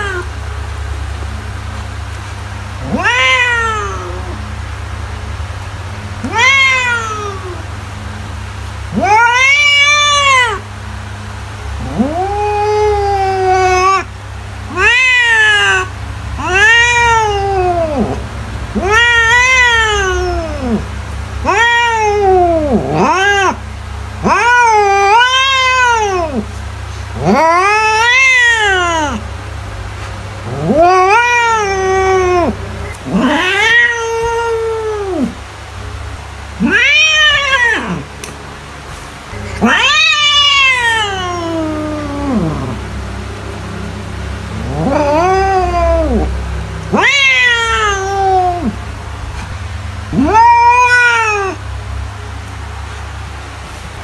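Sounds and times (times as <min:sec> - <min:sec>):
cat meowing: 0:00.0 - 0:00.3, 0:02.8 - 0:04.5, 0:06.2 - 0:07.7, 0:08.9 - 0:10.6, 0:11.8 - 0:14.1, 0:14.7 - 0:23.6, 0:24.2 - 0:26.5, 0:27.2 - 0:29.2, 0:30.4 - 0:35.4, 0:36.6 - 0:38.1, 0:39.3 - 0:49.5, 0:50.1 - 0:51.7.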